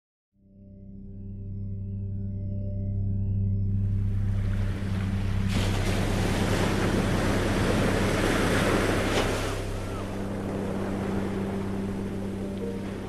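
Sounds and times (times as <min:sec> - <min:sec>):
steady low hum: 0:00.8 - 0:13.0
ocean wave breaking: 0:04.1 - 0:13.0.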